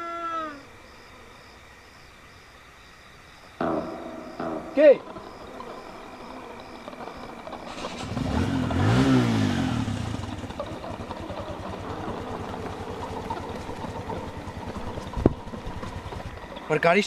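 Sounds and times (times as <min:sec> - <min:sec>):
vehicle engine starting and revving: 0:03.6 - 0:16.6.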